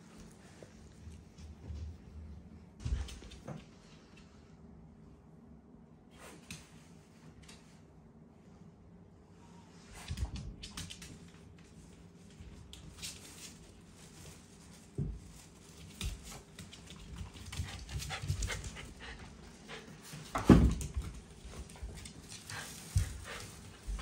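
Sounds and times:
dog panting and huffing: 17.0s - 20.4s, 21.5s - 24.0s.

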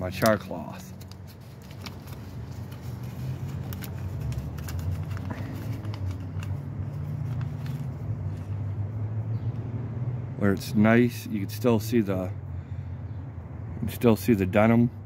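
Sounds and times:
cloth rustling: 0.9s - 8.6s.

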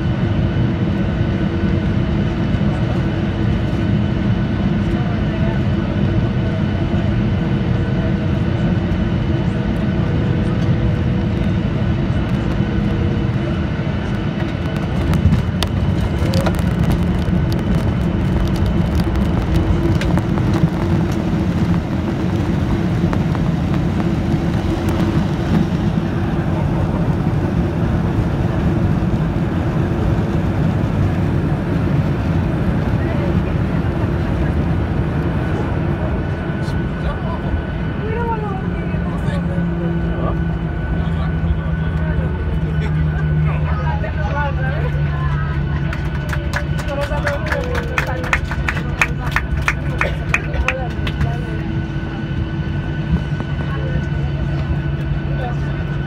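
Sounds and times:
airplane cabin engine rumble: 0.0s - 56.0s
wheels rolling on runway: 14.1s - 36.1s.

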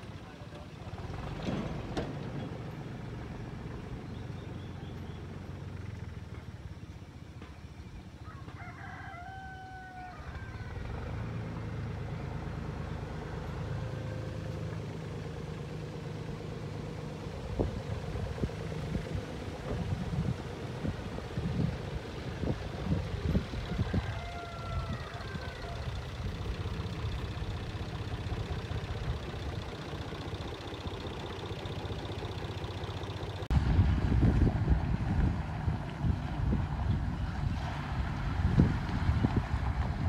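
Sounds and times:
diesel engines running: 0.0s - 40.0s
rooster crowing: 8.2s - 11.2s, 23.5s - 26.2s.

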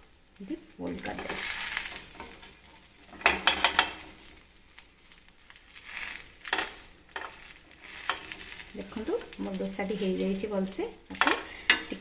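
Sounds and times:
spatula scraping on a pan: 1.0s - 10.4s.

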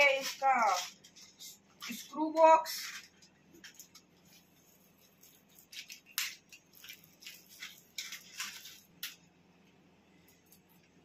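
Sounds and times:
small metal parts rattling: 0.0s - 4.0s, 5.2s - 9.2s.

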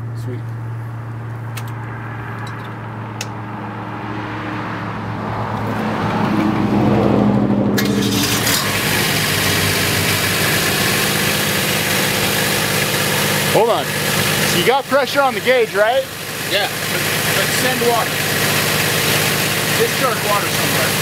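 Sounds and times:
pump engine revving: 7.7s - 21.0s.

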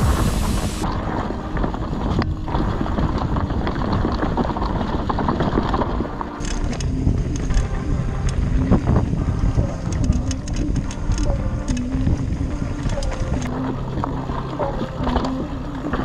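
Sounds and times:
bike clattering: 0.0s - 16.0s
tyres rumbling over rough ground: 0.0s - 16.0s
wind on microphone: 0.0s - 16.0s.

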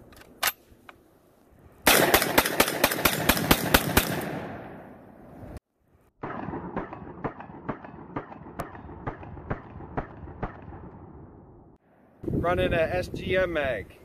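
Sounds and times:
shotgun shots in rapid succession: 1.8s - 5.0s, 6.2s - 11.5s.

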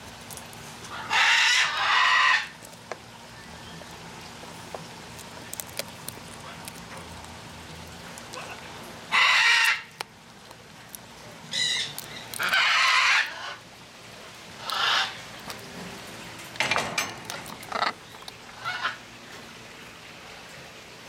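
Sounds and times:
macaw squawking: 9.1s - 10.0s, 14.6s - 15.2s.

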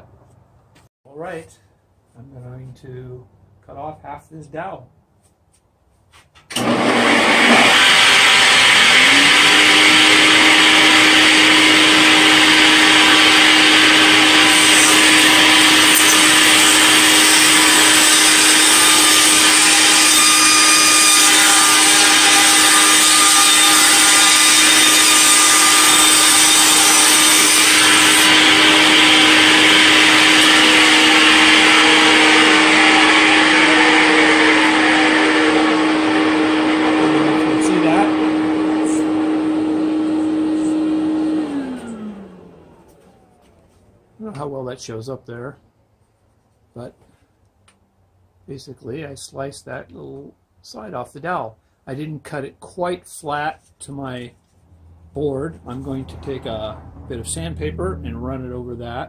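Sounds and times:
saw blade cutting wood: 6.5s - 39.2s
table saw running: 6.5s - 43.4s.

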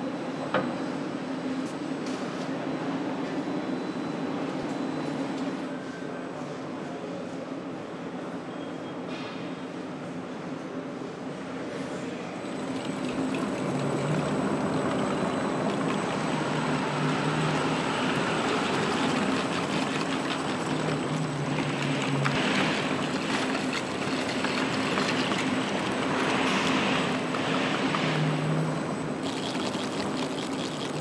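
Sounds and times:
tyres rushing on test rollers: 12.4s - 31.0s.

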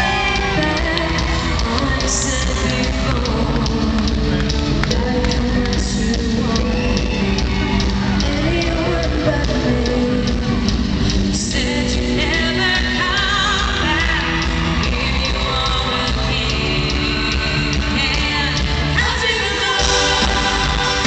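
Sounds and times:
drum beat: 0.0s - 11.5s
pop-rock band playing: 0.0s - 21.0s
women singing into microphones: 0.0s - 21.0s.

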